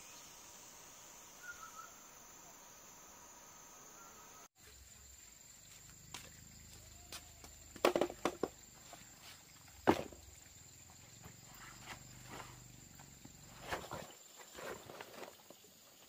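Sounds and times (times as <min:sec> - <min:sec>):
high insect drone: 0:00.0 - 0:16.0
sharp knocks and crunches: 0:07.8 - 0:08.6, 0:09.8 - 0:10.2.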